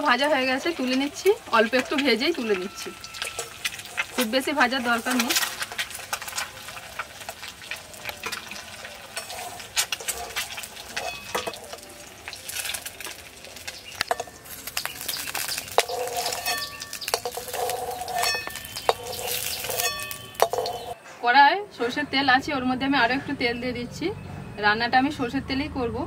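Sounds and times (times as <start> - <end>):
faint sizzle of frying: 0.0 - 21.0
spatula clinking and scraping metal pan: 0.2 - 21.0.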